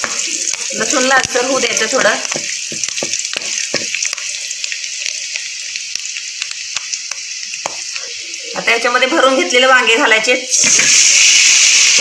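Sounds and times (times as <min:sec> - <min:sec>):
wooden spoon stirring: 0:00.0 - 0:05.5
spices sizzling in hot oil: 0:00.0 - 0:12.0.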